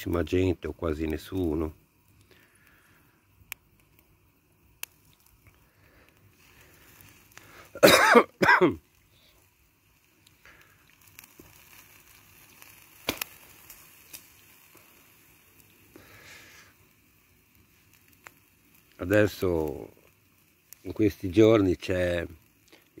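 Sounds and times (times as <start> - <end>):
steak sizzling on grill: 0.0 - 23.0
man coughing: 7.8 - 8.8.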